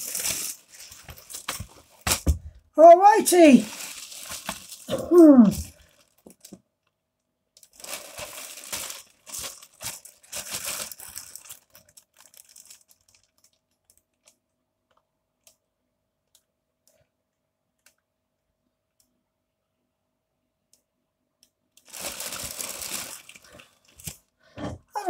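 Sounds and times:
plastic bag crinkling: 0:00.0 - 0:06.6, 0:07.6 - 0:14.4, 0:21.8 - 0:24.2.

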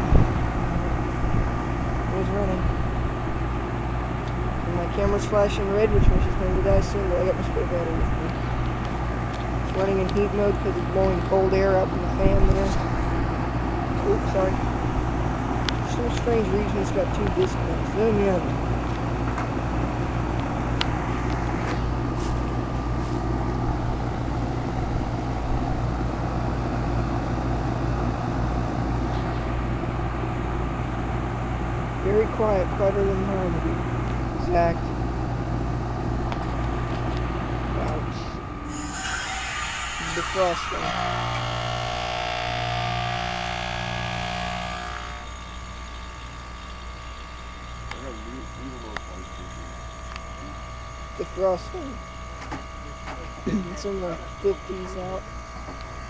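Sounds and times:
compressor hum: 0:00.0 - 0:56.0
outdoor fan whoosh: 0:00.0 - 0:56.0
heat pump hiss: 0:36.4 - 0:56.0.

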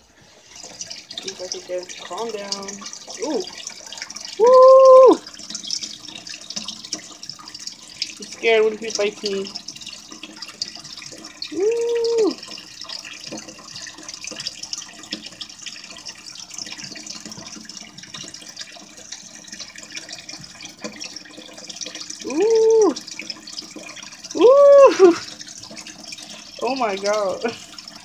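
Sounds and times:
water trickling: 0:00.0 - 0:28.0
person humming: 0:04.4 - 0:05.2, 0:11.6 - 0:12.4, 0:22.3 - 0:23.0, 0:24.4 - 0:25.2.

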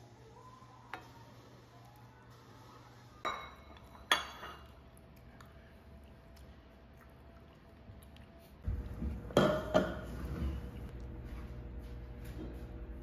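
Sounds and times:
utensils clinking on ceramic bowls: 0:03.2 - 0:04.8.

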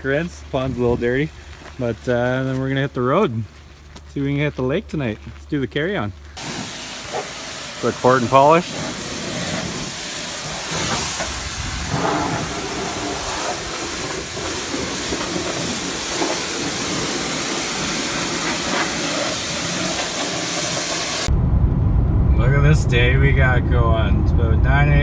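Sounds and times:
pressure washer spraying: 0:06.4 - 0:21.3.

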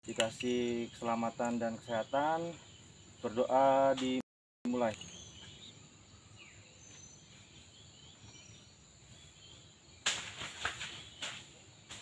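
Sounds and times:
faint bird chirps: 0:00.1 - 0:12.0
close rustles and knocks: 0:10.0 - 0:12.0.

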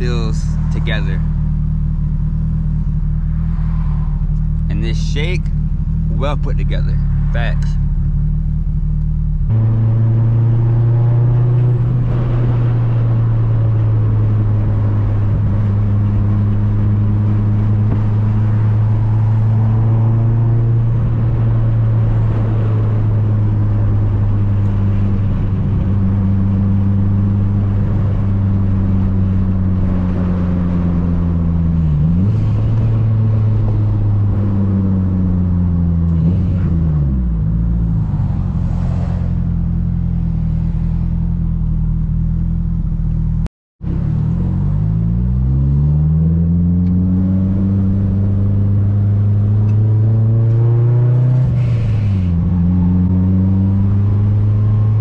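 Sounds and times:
car engine droning: 0:00.0 - 0:55.0.

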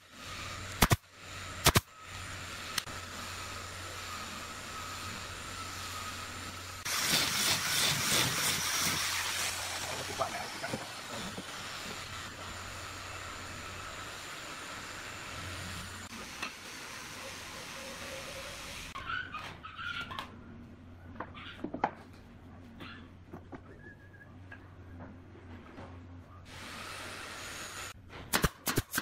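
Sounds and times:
compressed air hissing: 0:00.0 - 0:19.0.

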